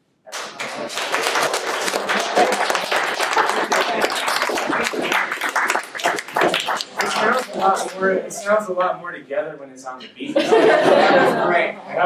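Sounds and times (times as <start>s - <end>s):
audience clapping: 0.3s - 8.2s.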